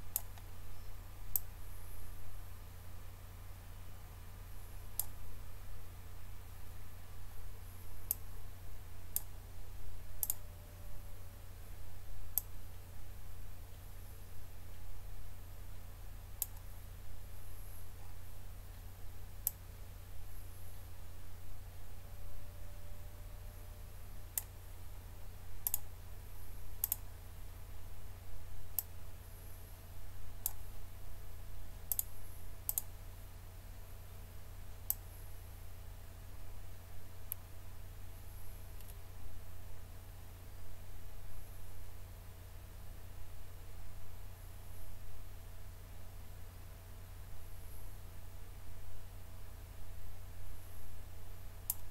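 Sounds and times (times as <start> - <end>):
steady low hum: 0.0 - 51.9
computer mouse clicking: 0.1 - 0.5, 5.0 - 5.2, 9.1 - 9.3, 10.2 - 10.4, 12.3 - 12.5, 16.4 - 16.7, 25.6 - 25.9, 26.8 - 27.0, 30.4 - 30.7, 31.9 - 32.9, 38.8 - 39.0, 51.7 - 51.9.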